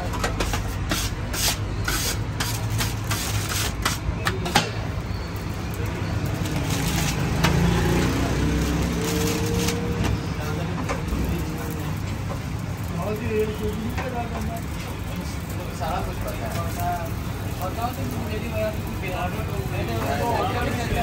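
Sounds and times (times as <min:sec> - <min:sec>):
sharp clatters and knocks: 0:00.0 - 0:04.9
traffic rumble: 0:00.0 - 0:21.0.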